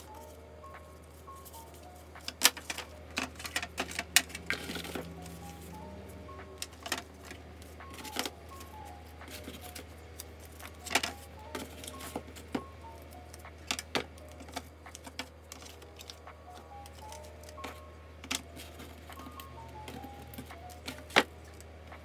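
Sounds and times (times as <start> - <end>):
plastic pens clicking and clattering: 1.4 - 5.8, 6.4 - 21.7.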